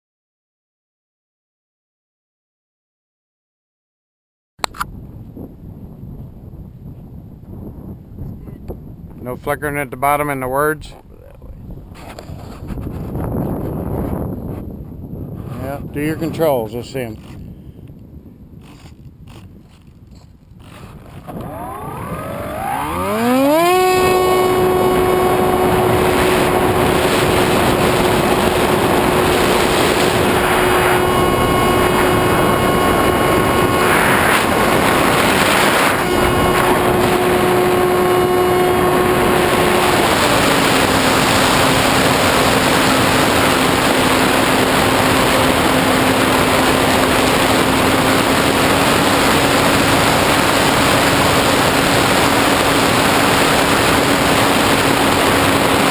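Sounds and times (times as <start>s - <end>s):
wind rushing over camera: 4.6s - 55.9s
electric motor and propeller whine: 18.5s - 55.9s.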